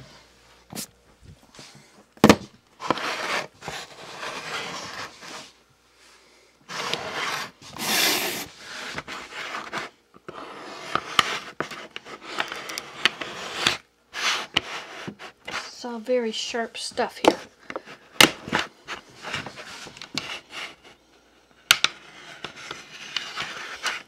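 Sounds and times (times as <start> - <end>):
hands rubbing and scraping: 21.7 - 24.0.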